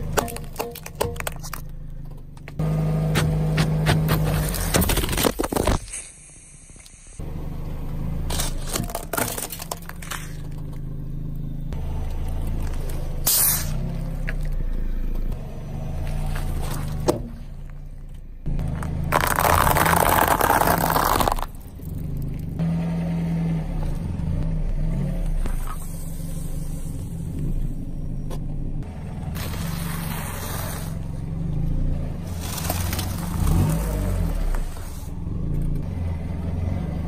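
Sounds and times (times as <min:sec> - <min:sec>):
car tyre rolling: 0:00.0 - 0:22.7, 0:23.5 - 0:37.0
plastic bottle crushed: 0:04.1 - 0:06.0, 0:08.4 - 0:10.4, 0:19.1 - 0:21.6
dry pasta crackling: 0:19.1 - 0:21.9.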